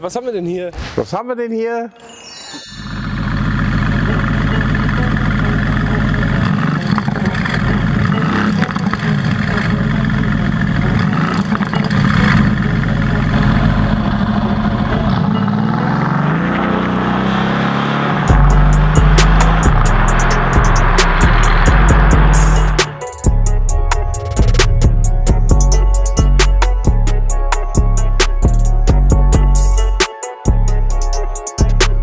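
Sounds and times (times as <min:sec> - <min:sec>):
car engine revving: 0:02.8 - 0:24.9.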